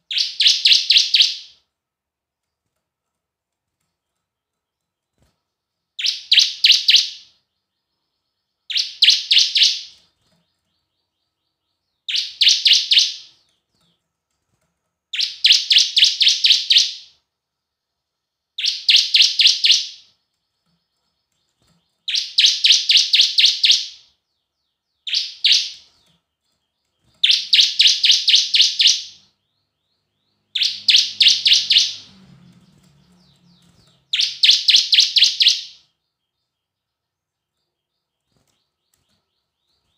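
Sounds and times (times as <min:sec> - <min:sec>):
bird singing sharp high chips: 0:00.0 - 0:01.6, 0:06.0 - 0:07.4, 0:08.7 - 0:10.3, 0:12.1 - 0:13.5, 0:15.1 - 0:17.2, 0:18.6 - 0:20.1, 0:21.4 - 0:24.1, 0:25.0 - 0:26.2, 0:27.0 - 0:29.4, 0:30.0 - 0:35.9.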